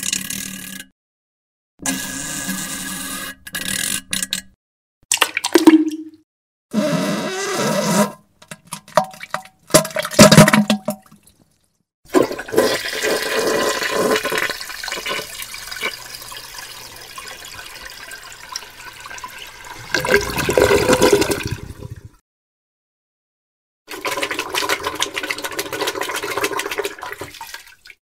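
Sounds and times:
toilet flushing: 12.1 - 22.2, 23.9 - 27.9.

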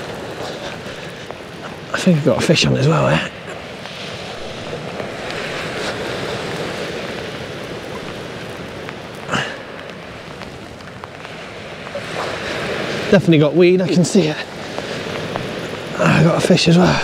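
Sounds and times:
sea surf: 0.0 - 17.0
wind: 0.0 - 17.0.

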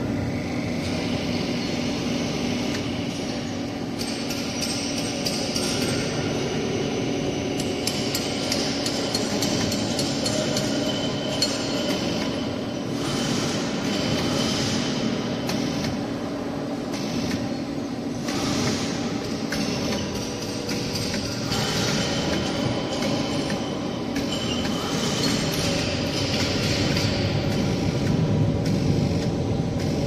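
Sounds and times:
hydraulic power unit hum: 0.0 - 30.0.

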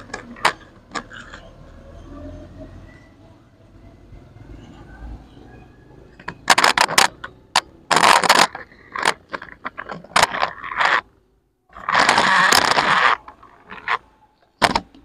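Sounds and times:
toy trucks scraping on dirt: 0.0 - 3.0, 6.2 - 15.0.

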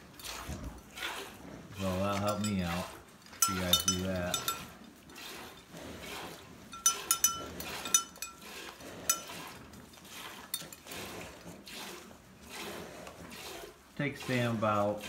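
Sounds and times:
milk squirting into metal pail: 0.0 - 15.0
metal pail clinks: 1.8 - 5.0, 6.7 - 8.4, 9.1 - 9.4, 10.5 - 10.8.

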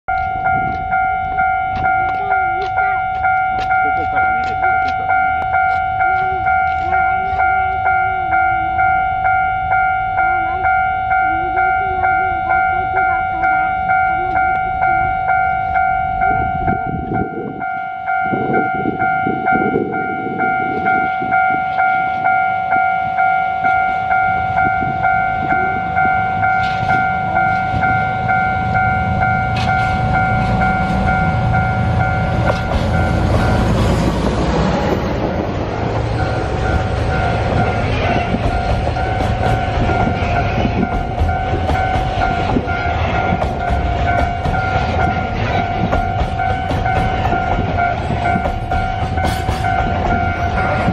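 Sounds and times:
level crossing bell ringing: 0.1 - 34.9, 36.0 - 50.9
diesel locomotive engine: 0.1 - 50.9
wheels clacking over rail joints: 26.0 - 50.9.

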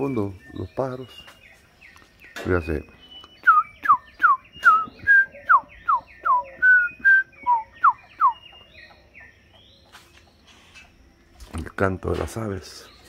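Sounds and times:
faint high bird calls: 0.0 - 13.0
bird whistling downward notes: 2.8 - 8.8.

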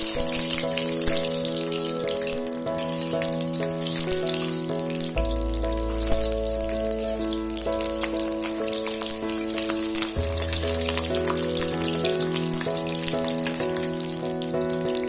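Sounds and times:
background music: 0.0 - 15.0
chicken deep-frying in oil: 0.0 - 15.0.

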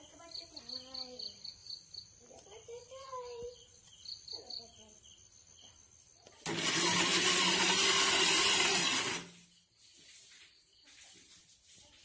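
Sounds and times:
electric mixer grinder running: 6.4 - 9.4.

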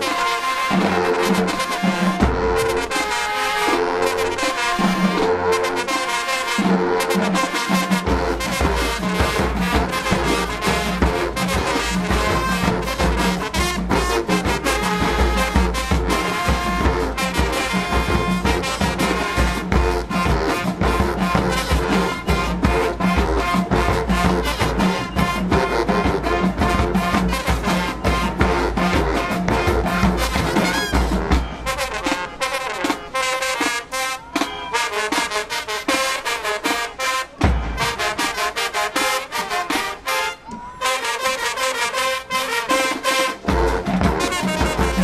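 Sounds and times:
marching band playing: 0.0 - 45.0.

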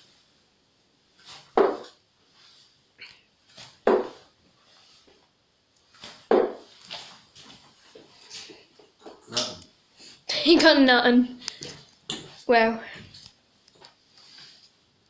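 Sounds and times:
darts thudding into dartboard: 1.6 - 2.0, 3.8 - 4.2, 6.3 - 6.7.

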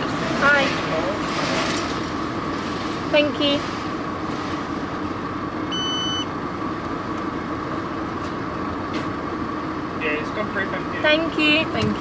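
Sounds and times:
car engine idling: 0.0 - 12.0
short electronic beep: 5.7 - 6.3.

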